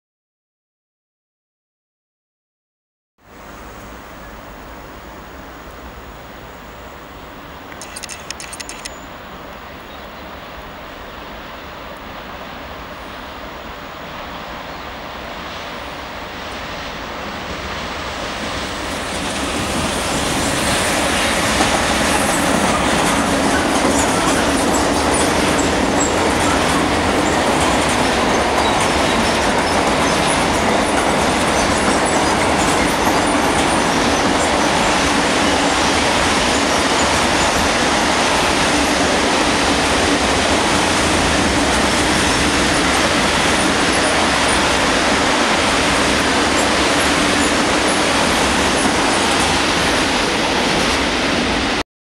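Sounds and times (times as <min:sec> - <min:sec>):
train wheels rumbling on rail: 0:03.4 - 0:09.1, 0:11.1 - 0:51.8.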